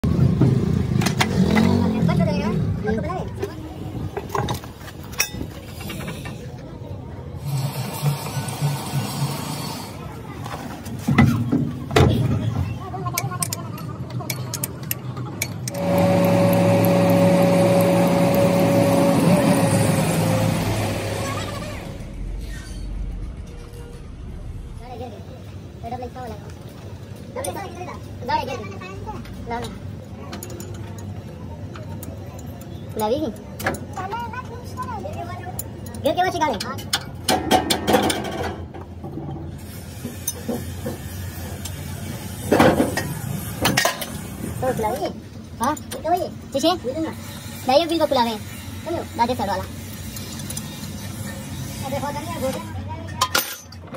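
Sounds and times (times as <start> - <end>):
truck diesel engine passing: 15.7 - 25.8
metal scraping: 15.7 - 26.9
steady low hum: 15.7 - 27.4.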